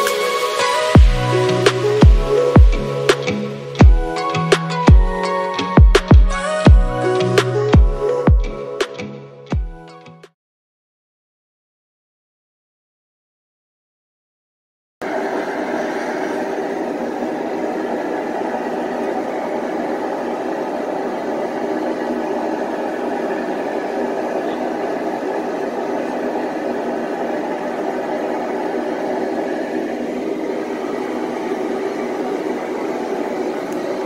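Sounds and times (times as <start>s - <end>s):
machine whirring: 0.0s - 5.7s, 15.0s - 34.0s.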